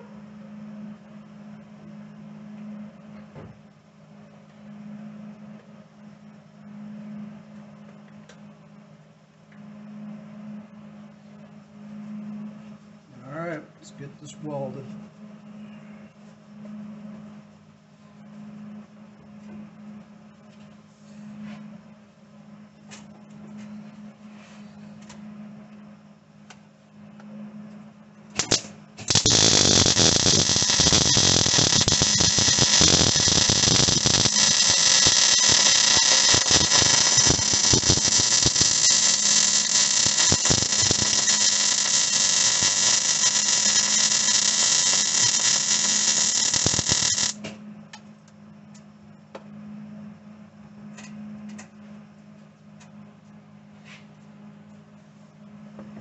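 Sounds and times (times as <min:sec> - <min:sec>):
welder arc crackling: 0:28.4 - 0:47.4.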